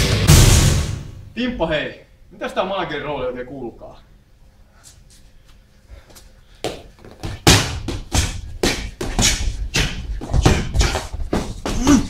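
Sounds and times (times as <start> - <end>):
boxing gloves hitting focus mitts: 6.6 - 12.0.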